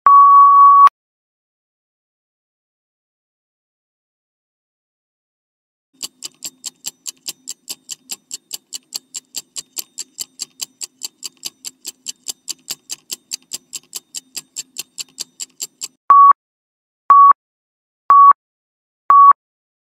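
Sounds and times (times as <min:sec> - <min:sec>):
fast clock-like ticking: 0:06.0 - 0:16.0.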